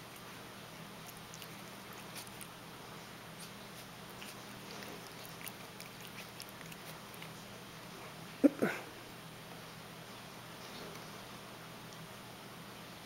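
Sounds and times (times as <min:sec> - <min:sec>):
steady low hum: 0:00.0 - 0:13.0
cat chewing fabric fringe: 0:01.0 - 0:08.0.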